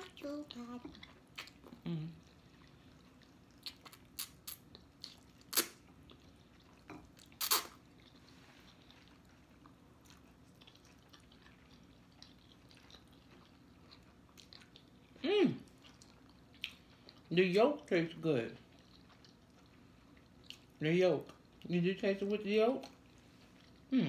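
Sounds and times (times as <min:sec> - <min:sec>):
wet mouth sounds: 0:00.8 - 0:08.1.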